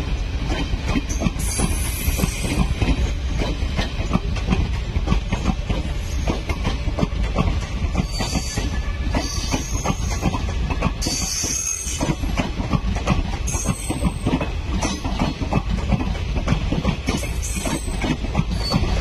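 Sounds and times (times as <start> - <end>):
steady low train rumble: 0.0 - 19.0
train wheels knocking on rail joints: 0.0 - 19.0
train wheel squeals: 1.1 - 3.5, 7.9 - 12.3, 13.4 - 15.2, 17.1 - 19.0.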